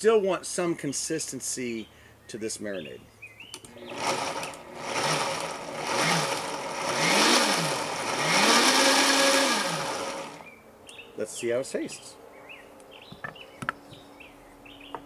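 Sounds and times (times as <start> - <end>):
blender motor pulsing: 3.7 - 10.5.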